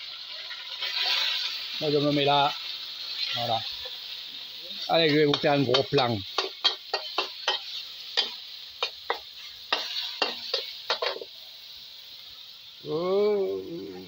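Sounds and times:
oil sizzling: 0:00.0 - 0:14.0
spatula scraping a wok: 0:04.8 - 0:11.3.

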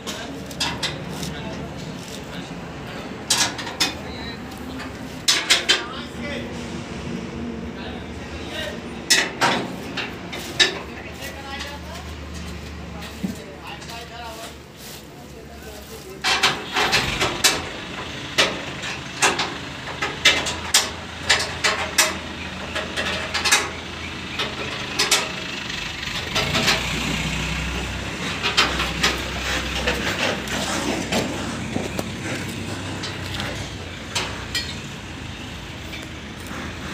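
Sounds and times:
sharp clicks and knocks: 0:00.0 - 0:02.4, 0:03.2 - 0:05.9, 0:16.2 - 0:25.4, 0:26.1 - 0:35.0.

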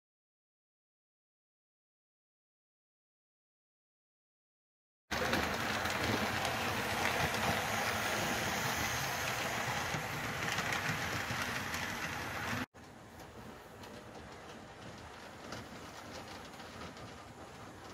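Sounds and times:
model train wheels rolling: 0:05.1 - 0:17.9.

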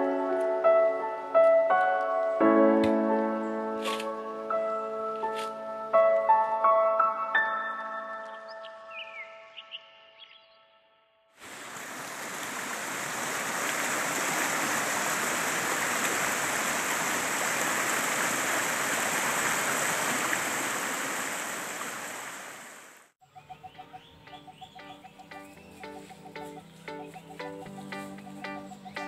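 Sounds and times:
music: 0:00.0 - 0:09.6, 0:23.2 - 0:29.0
stream rushing over rocks: 0:11.4 - 0:23.1.

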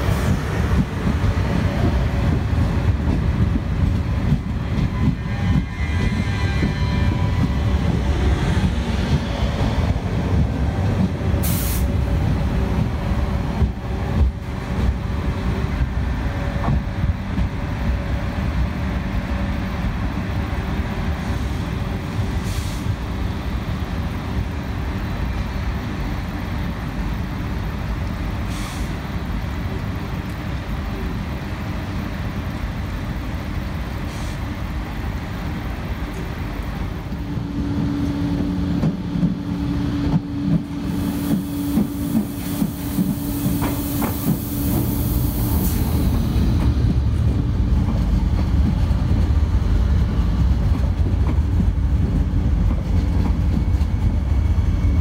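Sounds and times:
train rumbling: 0:00.0 - 0:55.0
compressed air hisses: 0:11.4 - 0:12.0, 0:22.3 - 0:23.0, 0:42.3 - 0:46.4.

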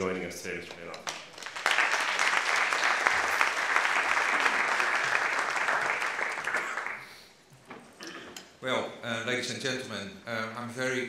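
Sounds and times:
audience applauding: 0:00.9 - 0:07.2.

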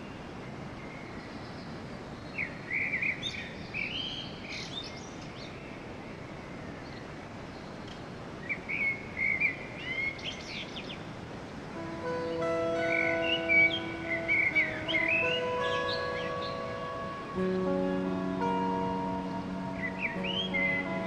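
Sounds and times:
steady background noise: 0:00.0 - 0:21.0
songbird chirping: 0:11.8 - 0:21.0.

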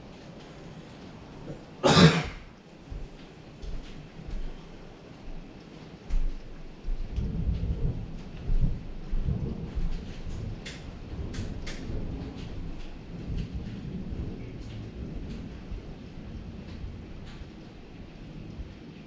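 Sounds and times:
steady rain: 0:00.0 - 0:19.0
thunder rumbling: 0:00.0 - 0:19.0
hail striking hard surfaces: 0:06.4 - 0:18.9.

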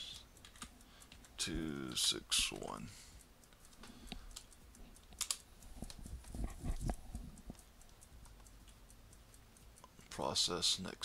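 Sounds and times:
computer keyboard keystrokes: 0:00.1 - 0:02.8, 0:03.4 - 0:09.9.

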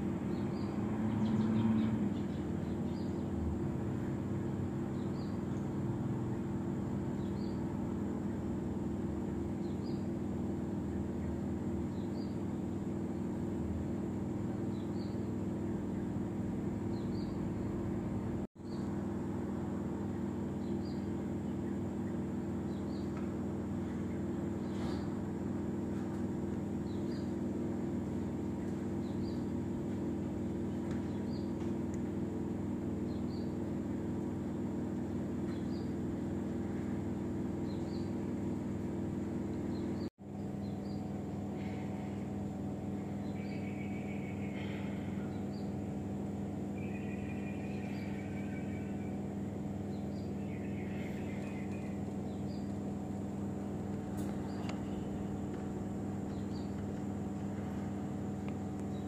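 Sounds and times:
low mechanical hum: 0:00.0 - 0:59.0
thin high whine: 0:46.6 - 0:52.6.

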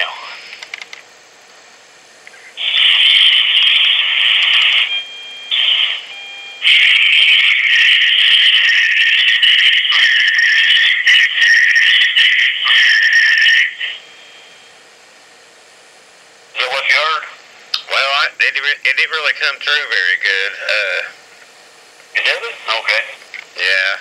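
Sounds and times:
harsh hiss from phone speaker: 0:00.0 - 0:14.2.

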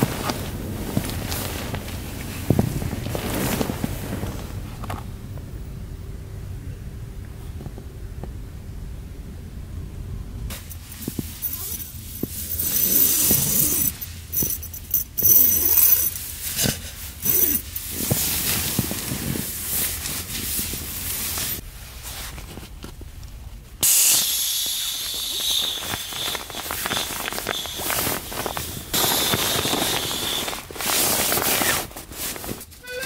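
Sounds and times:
sleeping bag rustling: 0:00.0 - 0:04.9, 0:10.5 - 0:22.9, 0:24.1 - 0:33.0
air hissing from pad valve: 0:23.8 - 0:30.5.

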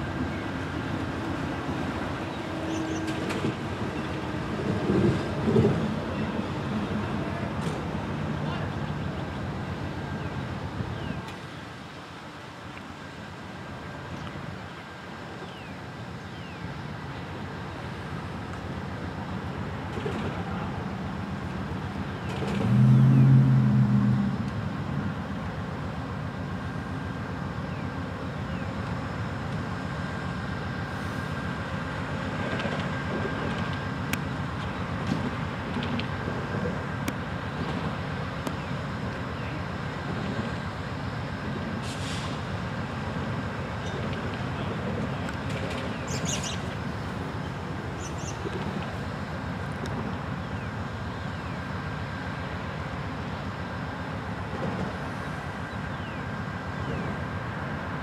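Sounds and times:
train rumbling slowly: 0:00.0 - 0:58.0
train horn blast: 0:22.6 - 0:24.5.

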